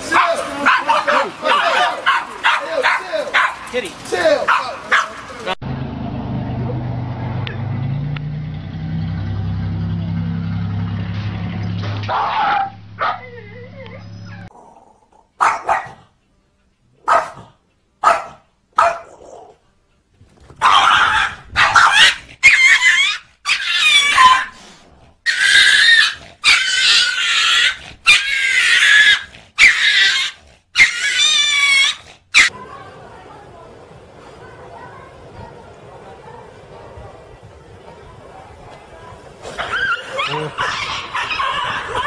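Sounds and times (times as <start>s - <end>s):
animals crying shrilly: 20.6s - 24.5s, 25.3s - 32.5s, 39.6s - 42.0s.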